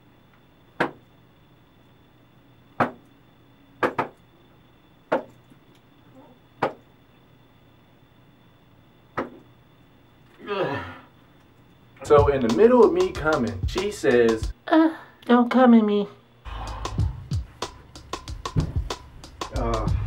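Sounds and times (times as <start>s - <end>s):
faint steady hum: 0.0s - 20.0s
sharp slaps or knocks: 0.8s - 1.0s, 2.8s - 3.1s, 3.8s - 4.2s, 5.1s - 5.4s, 6.6s - 6.8s, 9.2s - 9.4s, 18.5s - 19.0s.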